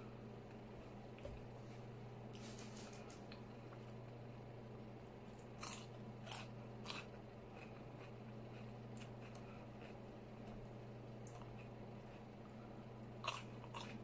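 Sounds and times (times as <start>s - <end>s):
steady low hum: 0.0s - 14.0s
person chewing food: 5.3s - 14.0s.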